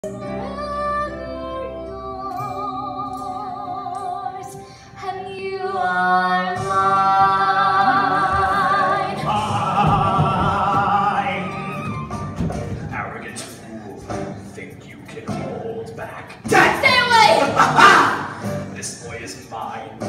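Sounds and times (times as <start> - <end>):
musical accompaniment: 0.0 - 20.0
young woman singing with vibrato: 0.1 - 10.5.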